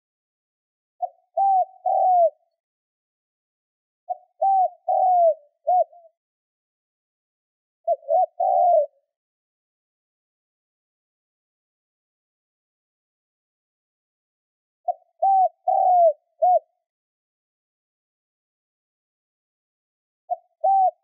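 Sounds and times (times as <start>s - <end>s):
dove cooing: 1.0s - 2.4s, 4.1s - 6.1s, 7.9s - 9.1s, 14.9s - 16.7s, 20.3s - 21.0s.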